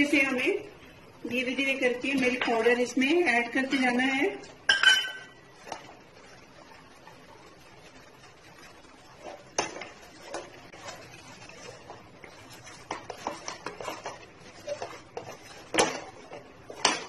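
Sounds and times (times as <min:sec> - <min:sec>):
wooden spatula scraping pan: 0:05.4 - 0:17.0.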